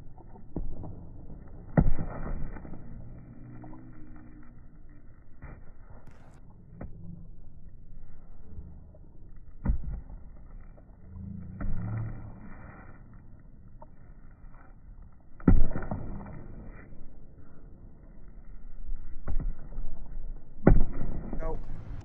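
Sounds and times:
basketball bouncing on asphalt: 0.0s - 3.9s, 5.4s - 7.2s, 9.4s - 12.8s, 15.2s - 16.9s, 19.1s - 21.8s.

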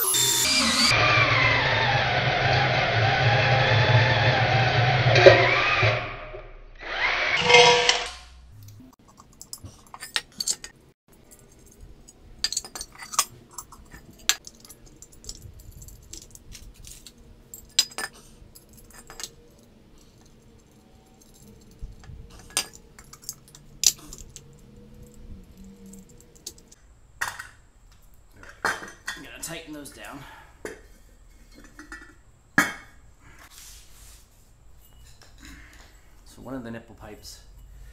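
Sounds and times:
metallic clinks of steel hardware: 9.1s - 26.7s.

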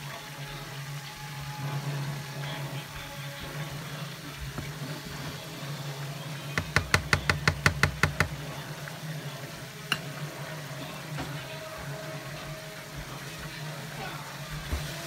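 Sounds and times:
fish frying in oil: 0.0s - 15.0s
spatula tapping against a wok: 6.5s - 8.4s.

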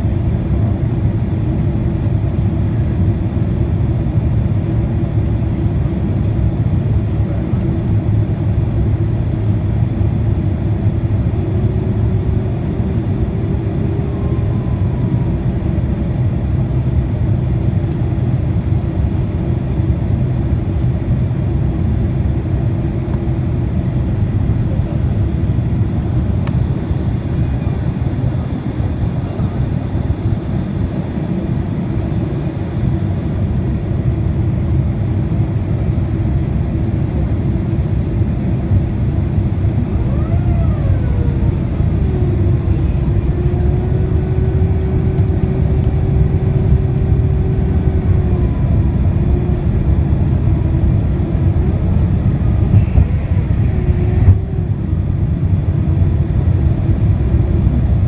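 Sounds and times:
airplane cabin engine rumble: 0.0s - 58.0s
constant hum: 0.0s - 58.0s.

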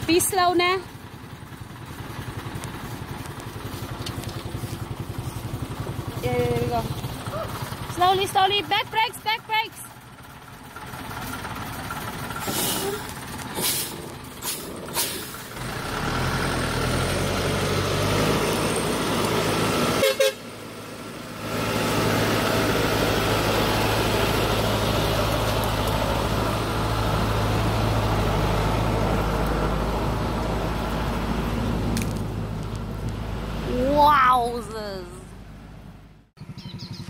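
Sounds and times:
motorbike engine running: 0.0s - 15.0s, 36.4s - 37.0s.

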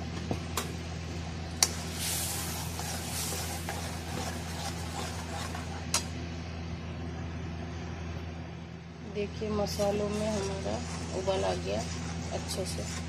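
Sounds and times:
steady low hum: 0.0s - 13.0s
wooden spatula scraping paste: 1.7s - 6.0s, 9.5s - 13.0s
paste bubbling: 1.8s - 5.9s.

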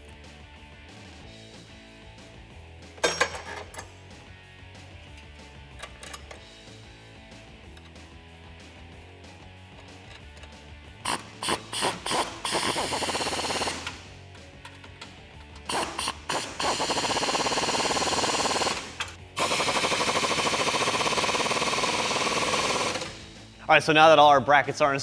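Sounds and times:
background music: 0.0s - 25.0s
impact wrench hammering: 3.0s - 3.8s, 11.0s - 14.8s, 15.7s - 23.3s.

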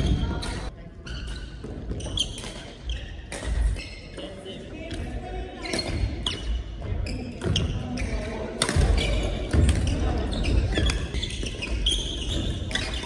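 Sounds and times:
shoes thudding and squeaking: 0.0s - 4.3s, 5.6s - 13.0s
racket hitting shuttlecock: 1.3s - 3.8s, 8.5s - 10.0s.

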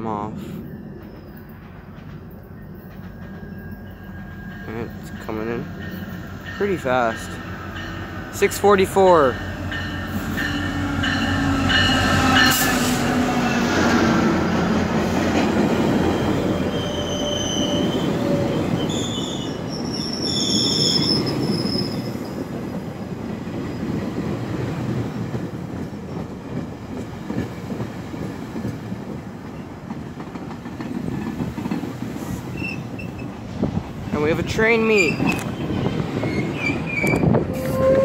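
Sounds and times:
train coaches rumbling on rails: 0.0s - 38.0s
high-pitched metallic squeals: 16.0s - 22.4s, 34.8s - 38.0s.

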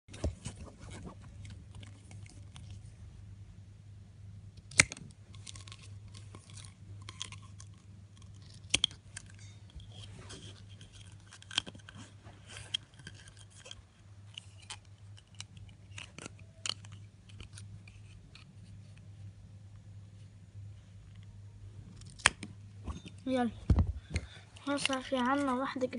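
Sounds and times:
scissors snipping plastic straw: 4.6s - 5.8s
straw being handled: 5.3s - 19.3s.

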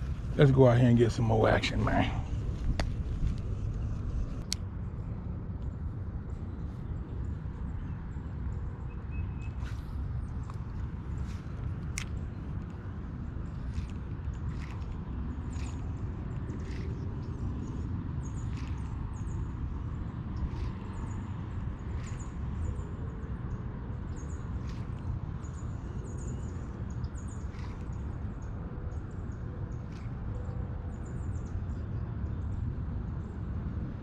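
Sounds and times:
steady low rumble: 0.0s - 34.0s
small birds chirping: 6.4s - 33.4s.

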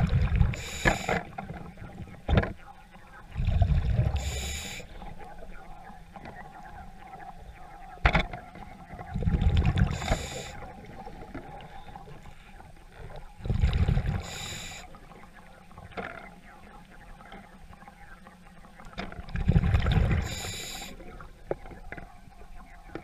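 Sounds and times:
underwater exhaled air bubbles: 0.0s - 23.0s
regulator breathing: 0.5s - 1.3s, 4.0s - 5.1s, 9.9s - 10.7s, 13.5s - 15.0s, 20.1s - 21.2s.

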